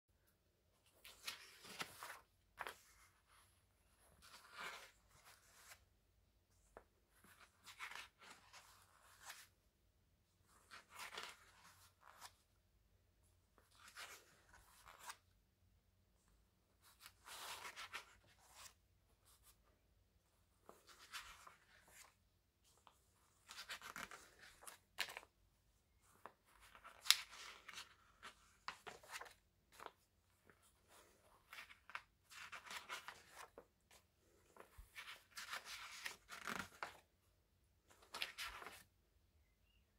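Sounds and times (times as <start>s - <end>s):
paper pages rustling: 0.8s - 5.8s, 20.6s - 25.3s, 26.0s - 37.0s, 37.9s - 38.9s.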